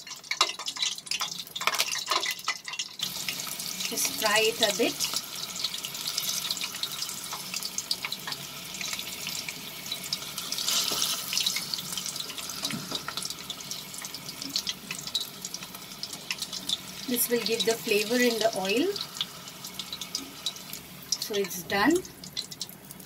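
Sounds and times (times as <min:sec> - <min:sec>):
leaves and chillies frying in oil: 0:00.0 - 0:23.0.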